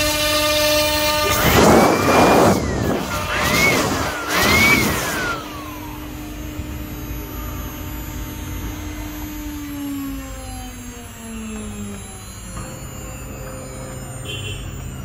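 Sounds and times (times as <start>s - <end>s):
cutting noise: 0.0s - 15.0s
power tool motor whine: 0.0s - 15.0s
steady low hum: 0.4s - 15.0s.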